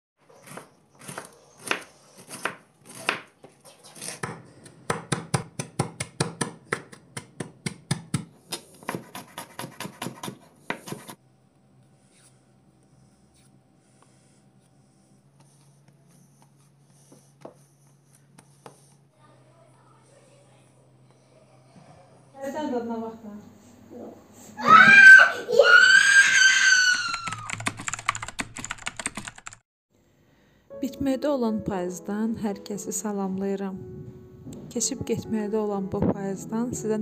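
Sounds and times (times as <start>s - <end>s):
knife chopping vegetables on wood: 0.4s - 11.2s.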